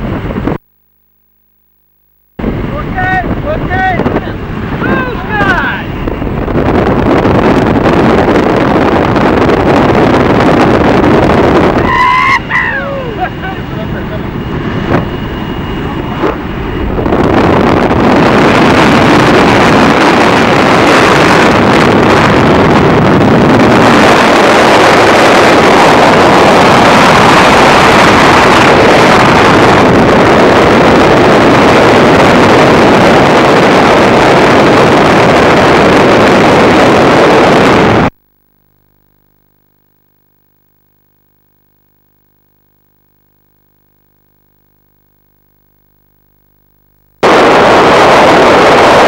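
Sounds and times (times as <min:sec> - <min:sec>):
wind rushing over microphone: 0:00.0 - 0:00.6, 0:02.4 - 0:38.2, 0:47.2 - 0:49.0
propeller plane engine: 0:02.3 - 0:38.2, 0:47.2 - 0:49.0.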